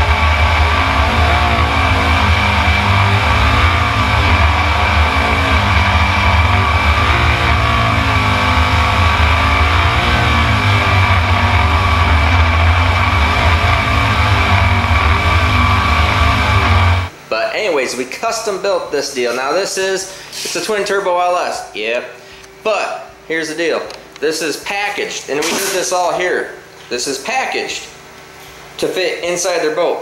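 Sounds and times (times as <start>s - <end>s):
boat engine running hard: 0.0s - 17.1s
rock music with guitar: 0.0s - 17.1s.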